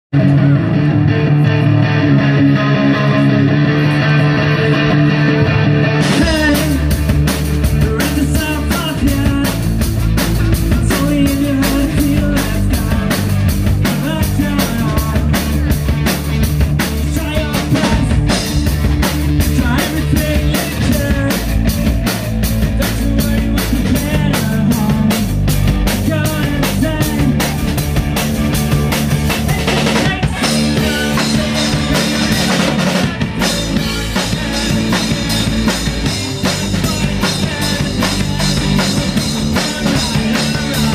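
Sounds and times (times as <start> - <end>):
live rock band playing: 0.2 - 40.9
driving drum beat: 3.0 - 40.9.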